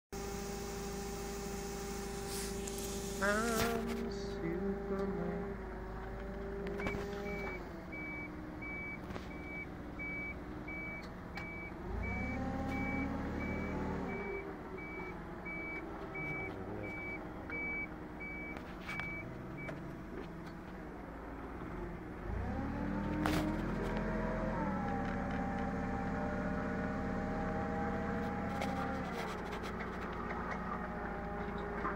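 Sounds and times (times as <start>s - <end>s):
forklift engine running: 0.1s - 31.9s
reversing alarm beeping: 6.8s - 19.7s.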